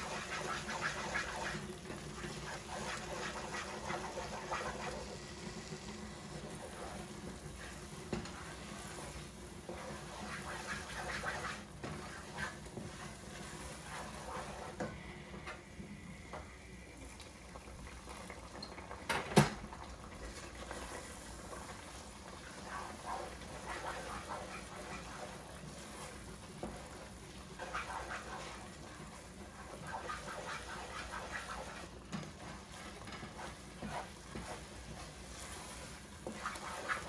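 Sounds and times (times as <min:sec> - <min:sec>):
stew bubbling in a pot: 0:00.0 - 0:37.0
wooden spoon stirring: 0:20.2 - 0:37.0.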